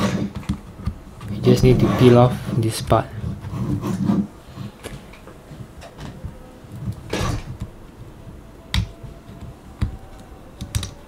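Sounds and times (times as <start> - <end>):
fingers scraping plastic case: 0.0 - 5.0
sharp plastic clicks: 8.7 - 11.0.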